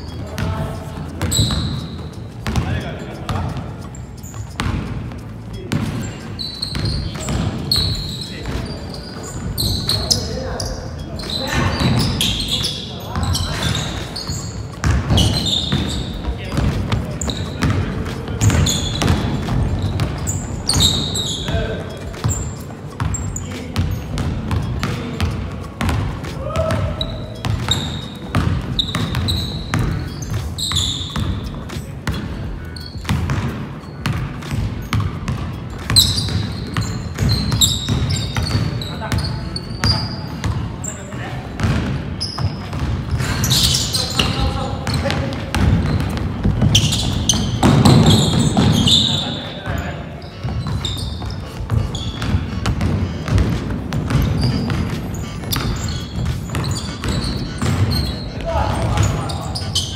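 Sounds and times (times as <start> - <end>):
sneaker squeaks: 0.0 - 59.9
voices in a hall: 0.0 - 59.9
basketball dribbling on wood floor: 0.2 - 3.7, 4.6 - 8.6, 14.7 - 40.7, 41.5 - 49.3, 50.3 - 59.9
running footsteps: 50.3 - 59.9.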